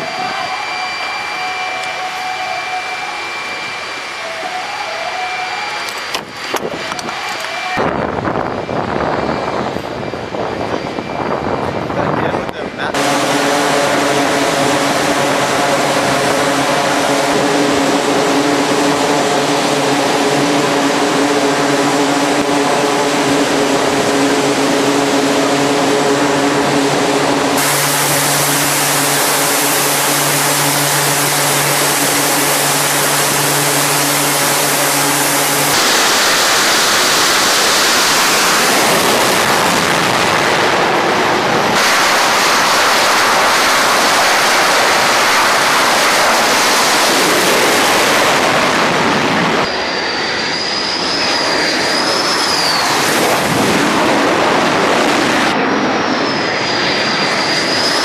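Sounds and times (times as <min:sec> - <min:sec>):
steady hum with held tones: 0:00.0 - 0:12.0, 0:12.9 - 0:40.4
jet engines roaring: 0:00.0 - 0:58.0
turboprop engines droning: 0:00.0 - 0:58.0.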